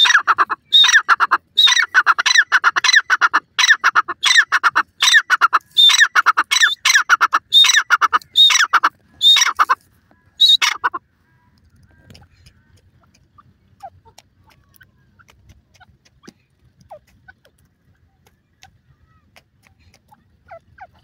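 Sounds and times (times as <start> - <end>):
francolin calling: 0.0 - 11.5.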